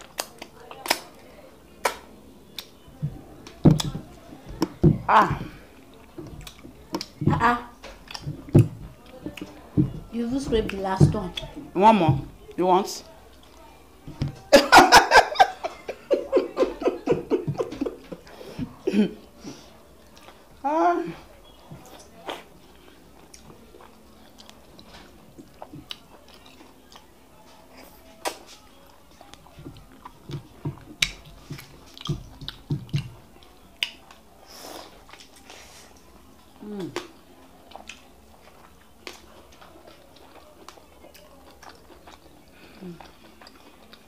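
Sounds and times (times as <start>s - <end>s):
woman laughing: 14.5s - 19.2s.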